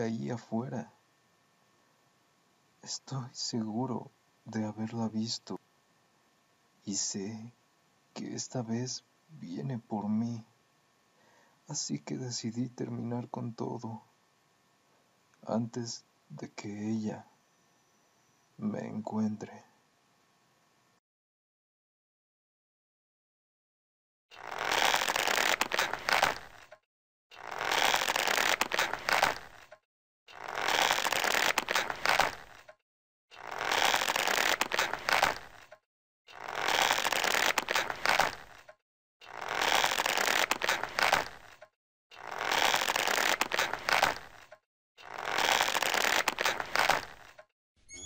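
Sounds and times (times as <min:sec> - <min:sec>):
rope creaking and scraping: 0:24.3 - 0:47.5.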